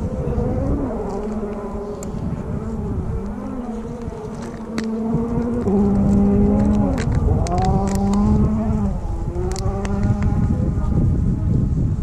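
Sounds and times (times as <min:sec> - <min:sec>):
rally car engine shifting gears: 0:00.4 - 0:10.6.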